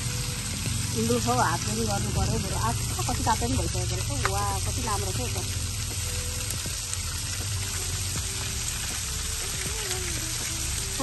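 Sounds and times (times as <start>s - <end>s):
meat sizzling on grill: 0.0s - 11.0s
people talking: 1.0s - 5.5s.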